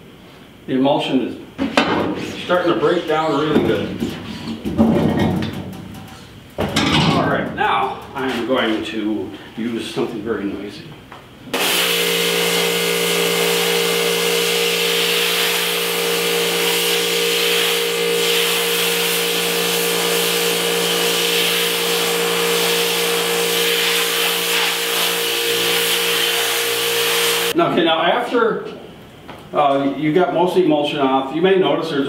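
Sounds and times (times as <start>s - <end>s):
pressure washer running: 11.6s - 27.6s.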